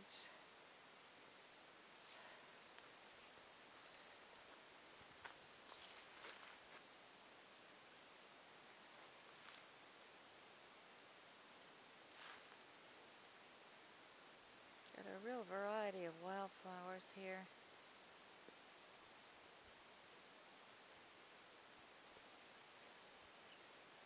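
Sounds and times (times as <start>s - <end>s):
insects trilling: 0.0s - 24.0s
insect chirping in quick pulses: 0.3s - 15.0s.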